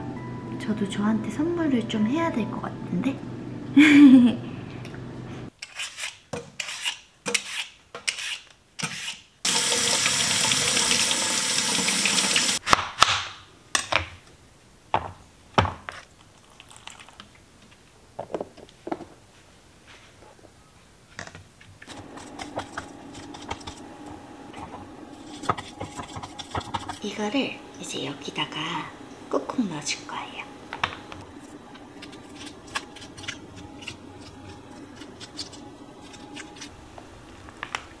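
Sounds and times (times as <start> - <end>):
machine hum: 0.0 - 5.5, 21.9 - 38.0
tap water running into sink: 9.5 - 12.6
kitchen clatter: 24.6 - 27.1.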